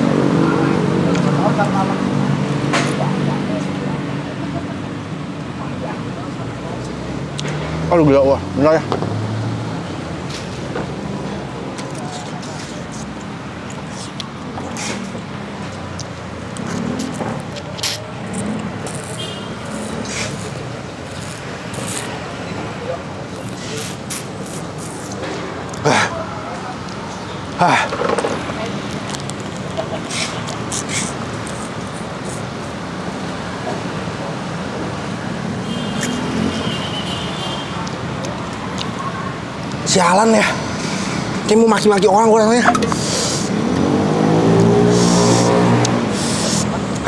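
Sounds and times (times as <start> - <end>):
road traffic engine hum: 0.0 - 47.0
short hisses: 42.9 - 43.6, 44.8 - 46.7.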